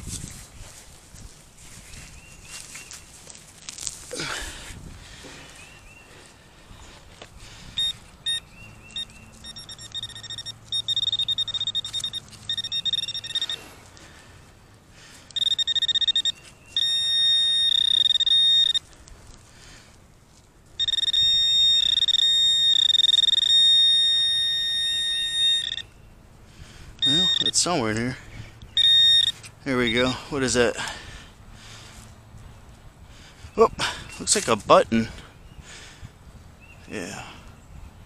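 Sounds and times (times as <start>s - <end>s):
metal detector pinpointer beeping: 7.8s - 13.8s, 15.3s - 18.9s, 20.8s - 26.0s, 27.0s - 27.8s, 28.6s - 30.2s.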